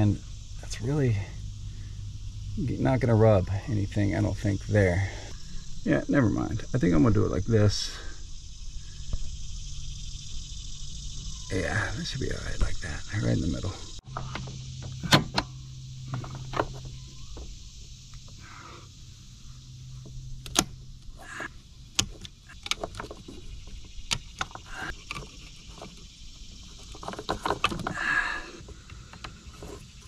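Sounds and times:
low steady hum: 0.0 - 22.6
hand tools clicking and knocking: 26.8 - 29.9.

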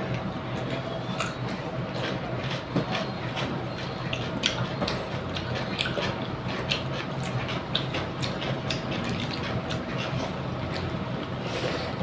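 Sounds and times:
fingers mixing food on a plate: 0.6 - 11.3.

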